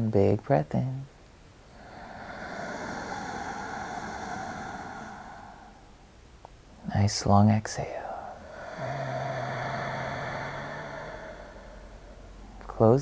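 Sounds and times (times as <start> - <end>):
slow breathy inhale: 1.7 - 6.2, 8.1 - 12.8.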